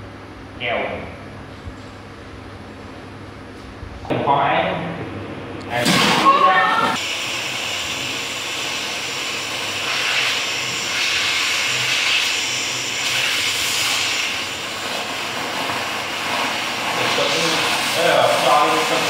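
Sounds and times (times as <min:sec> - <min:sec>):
compressed air hissing: 0:07.0 - 0:19.0.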